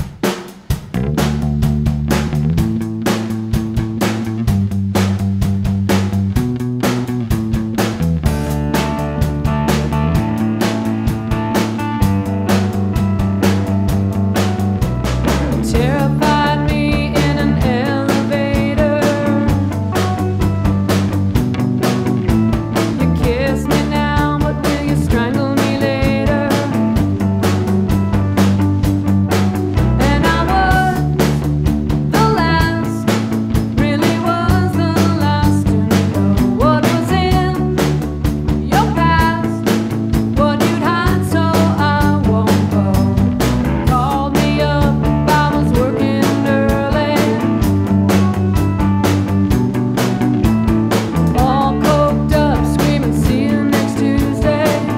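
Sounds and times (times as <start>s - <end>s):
drum beats: 0.0s - 54.9s
low bass notes: 0.7s - 54.9s
electric guitar: 0.8s - 54.9s
keyboard: 5.9s - 54.9s
woman singing: 15.6s - 20.0s, 22.8s - 27.2s, 30.0s - 31.4s, 32.1s - 37.9s, 38.6s - 39.7s, 40.3s - 47.7s, 51.3s - 54.9s.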